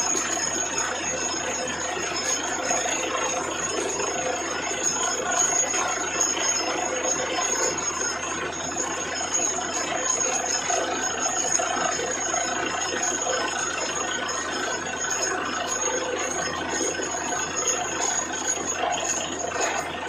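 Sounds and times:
drilling rig and air compressor: 0:00.0 - 0:20.0
thin high whine: 0:15.1 - 0:20.0.

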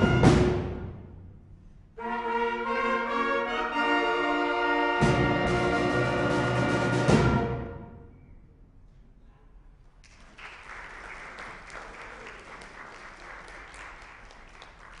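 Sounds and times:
audience applause: 0:10.0 - 0:15.0.

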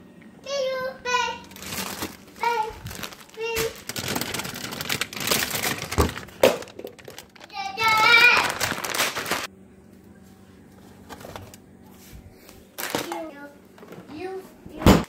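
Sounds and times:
faint steady hum: 0:00.0 - 0:14.8
plastic containers knocking and rustling: 0:01.5 - 0:09.5, 0:12.8 - 0:14.1.

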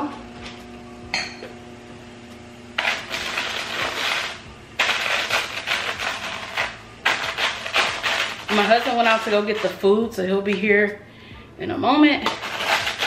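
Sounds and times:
glass rim scraping in sugar: 0:02.8 - 0:09.8, 0:12.2 - 0:13.0.

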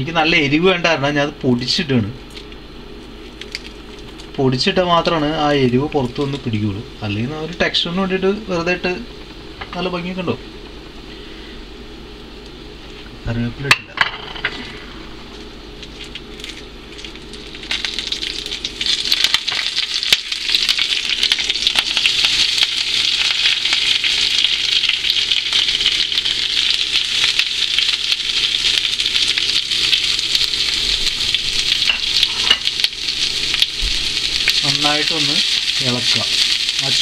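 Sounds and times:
oil sizzling in a frying pan: 0:15.8 - 0:37.0.

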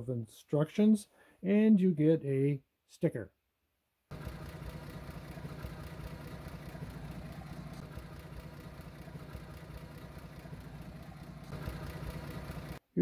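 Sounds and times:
car engine idling: 0:04.1 - 0:12.8.

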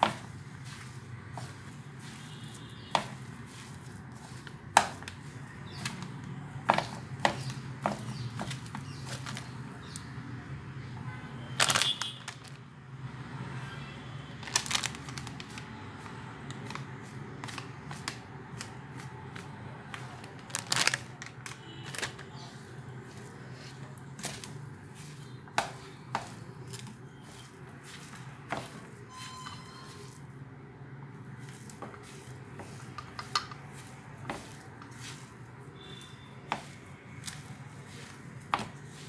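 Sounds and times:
hand mashing bread: 0:00.0 - 0:10.0, 0:22.4 - 0:28.9, 0:31.4 - 0:35.6, 0:36.5 - 0:39.0.

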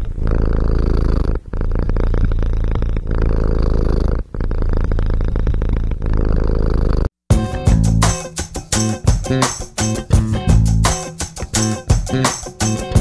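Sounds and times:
cat purring: 0:00.0 - 0:07.2.

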